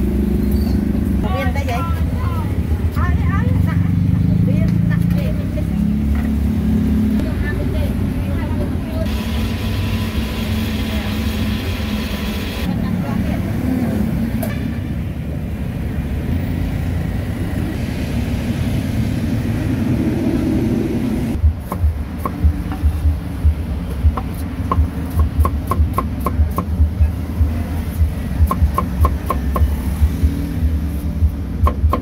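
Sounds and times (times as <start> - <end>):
cleaver chopping on wooden block: 24.2 - 26.8, 31.6 - 32.0.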